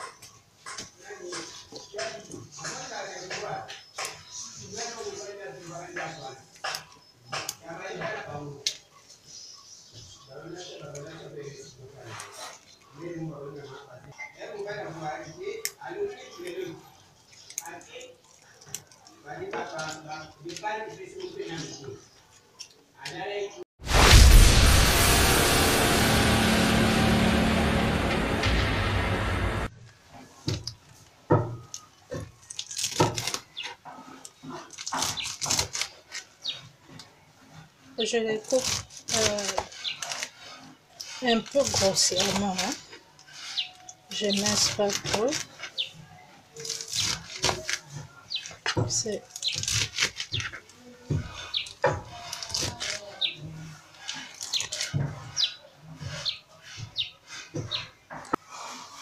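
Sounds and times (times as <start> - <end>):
loud intro soundtrack: 23.8 - 29.7
small bird chirping: 42.1 - 44.8, 45.6 - 46.2, 54.1 - 57.9.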